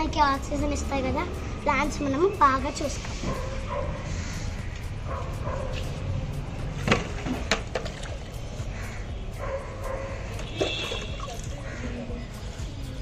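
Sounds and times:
dog barking: 3.2s - 4.1s, 5.1s - 5.8s, 9.4s - 10.2s.

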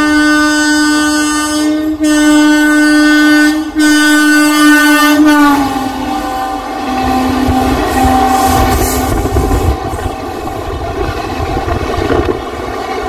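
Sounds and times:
train horn blasts: 0.0s - 10.9s.

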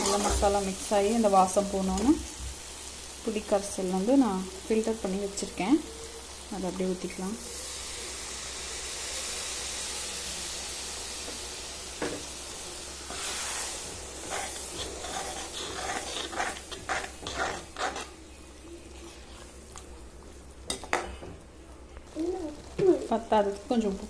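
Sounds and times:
liquid sizzling in hot pan: 0.0s - 24.0s
metal ladle scraping pan: 13.1s - 18.1s.

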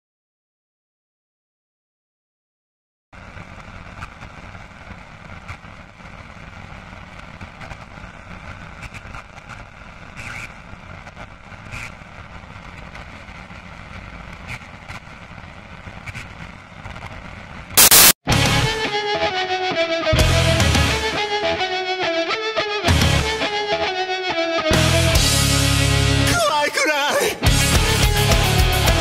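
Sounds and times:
crackles and clicks: 3.2s - 18.2s
band music: 17.8s - 29.0s.

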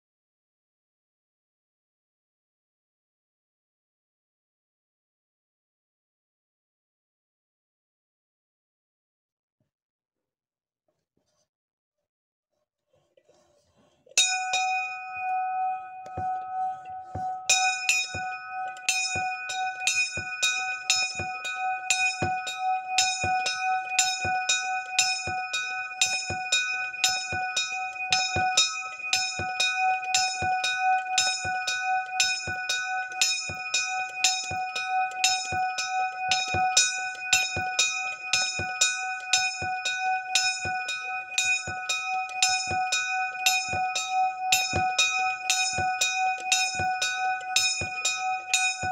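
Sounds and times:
small bell ringing: 14.2s - 48.9s.

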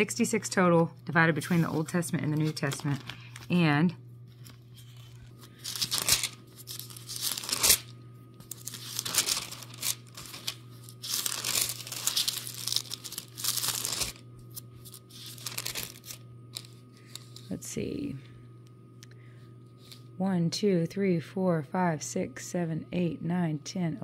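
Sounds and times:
thin paper pages rustling: 4.3s - 17.5s.

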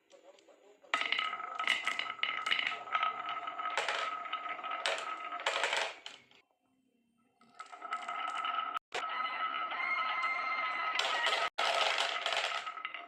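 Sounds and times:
marbles clattering down wooden groove: 1.0s - 6.3s, 10.8s - 13.0s.

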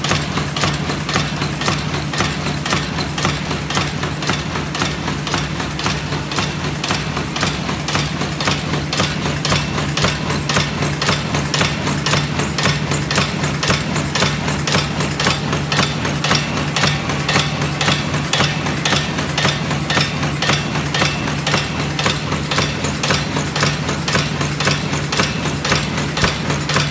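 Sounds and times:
fast regular mechanical clicking: 0.0s - 26.9s
machine motor hum: 0.0s - 26.9s.

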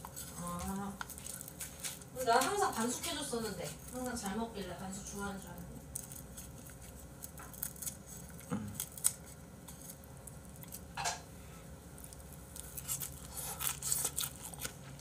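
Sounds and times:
person chewing: 0.0s - 2.1s, 5.8s - 11.0s, 11.8s - 15.0s.

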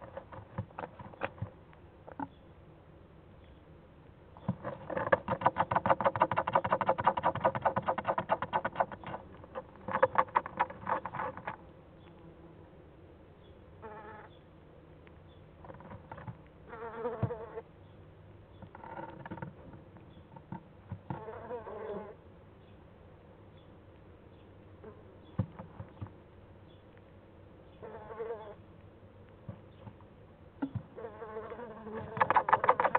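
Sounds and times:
owl chick buzzing trill: 13.8s - 14.4s, 31.0s - 32.9s.

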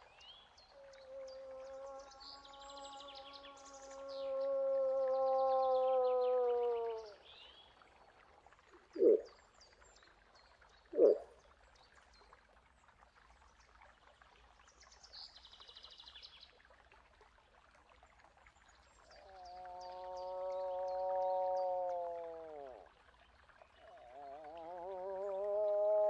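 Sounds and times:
long drawn-out moose call: 0.7s - 7.2s, 19.0s - 23.0s, 23.8s - 26.0s.

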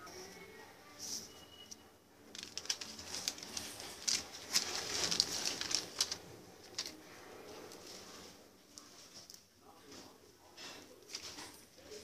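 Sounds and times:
plastic packaging crinkling: 2.3s - 8.2s.

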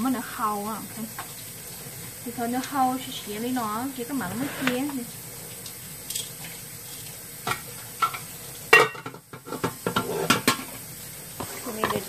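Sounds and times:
faint hiss: 0.0s - 12.0s.

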